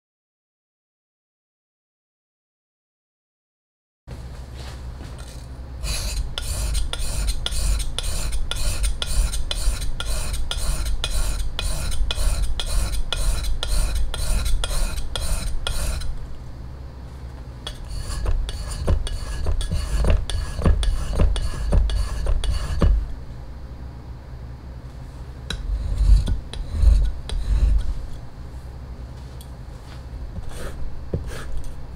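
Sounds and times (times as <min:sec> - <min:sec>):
knife scraping on whetstone: 0:05.3 - 0:16.2, 0:17.7 - 0:23.0, 0:25.5 - 0:28.2, 0:30.4 - 0:31.8.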